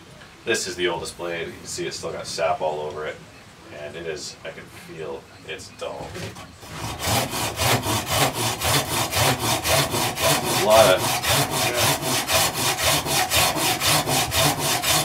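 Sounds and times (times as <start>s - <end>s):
pull saw cutting hardwood: 6.2s - 15.0s.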